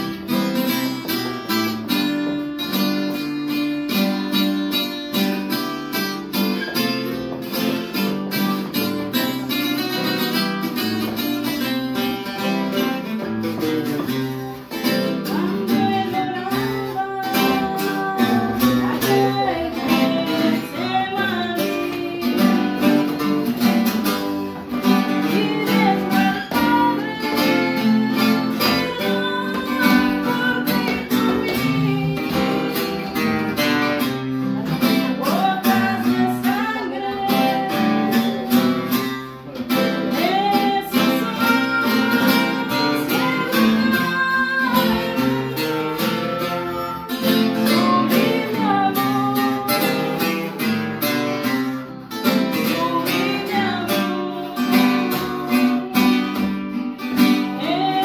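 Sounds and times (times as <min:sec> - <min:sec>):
acoustic guitars strumming: 0:00.0 - 0:58.0
woman and children singing: 0:14.8 - 0:24.1, 0:24.7 - 0:58.0.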